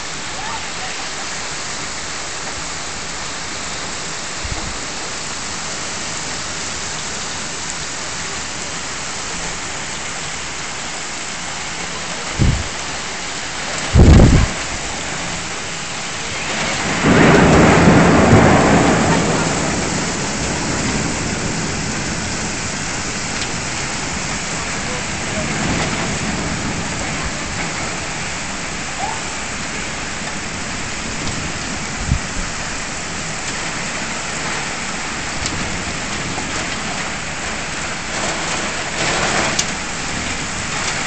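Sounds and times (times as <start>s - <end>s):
heavy rain pouring: 0.0s - 41.0s
thunder rumble: 12.0s - 13.0s, 13.6s - 41.0s.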